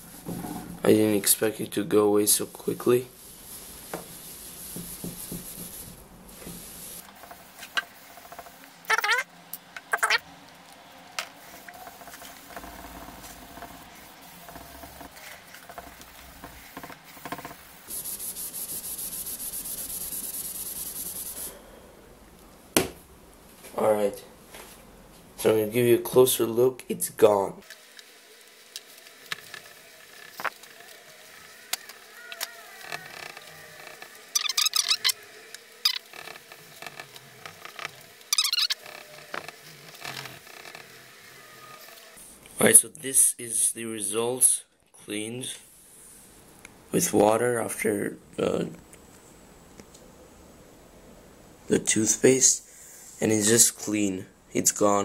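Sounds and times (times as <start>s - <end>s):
sponge scrubbing surface: 2.4s - 8.4s, 11.4s - 21.5s
sponge scrubbing squeaky chattering: 8.8s - 9.3s, 9.9s - 10.2s, 34.3s - 35.2s, 35.8s - 36.1s, 38.3s - 38.8s.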